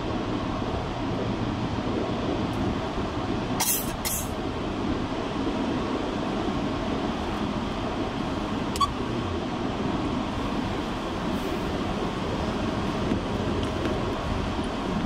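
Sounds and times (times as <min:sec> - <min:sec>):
tyres rumbling on wet road: 0:00.0 - 0:15.0.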